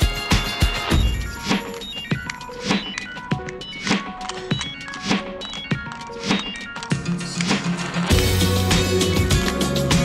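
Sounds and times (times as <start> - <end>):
background music: 0.0 - 10.0
bass line: 8.1 - 10.0.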